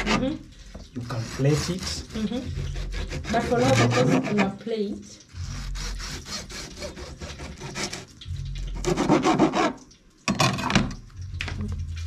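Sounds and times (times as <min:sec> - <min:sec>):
knife sawing on cutting board: 0:00.0 - 0:00.4, 0:01.0 - 0:04.6, 0:05.4 - 0:08.1, 0:08.8 - 0:09.8.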